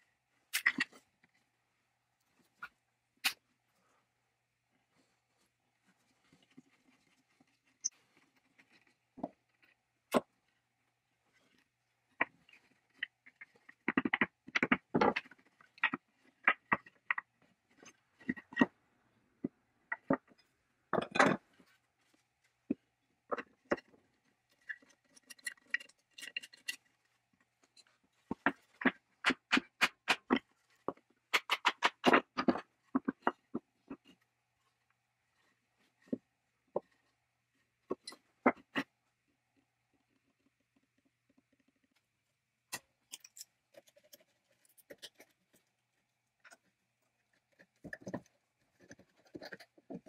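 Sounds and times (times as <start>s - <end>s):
small metal clinks and taps: 42.7s - 45.3s.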